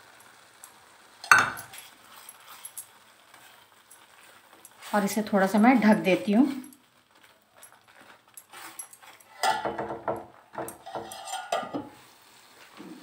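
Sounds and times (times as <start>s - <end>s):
gravy simmering: 0.0s - 13.0s
metal lid clinking and scraping: 1.2s - 1.9s, 8.5s - 10.0s, 10.7s - 12.0s.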